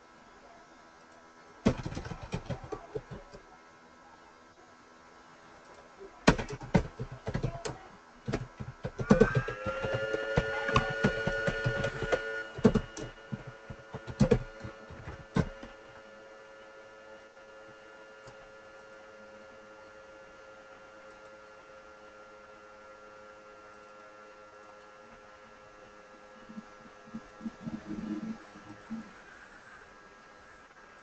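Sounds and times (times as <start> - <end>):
electrical hum with whining tones: 0.0 - 31.0
computer keyboard typing: 1.7 - 3.4, 6.3 - 15.7.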